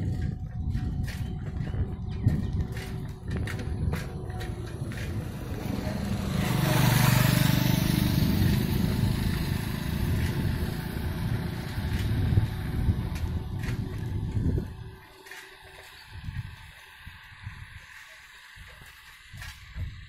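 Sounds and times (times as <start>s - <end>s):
low road rumble: 0.0s - 20.0s
vehicle passing by: 4.1s - 17.1s.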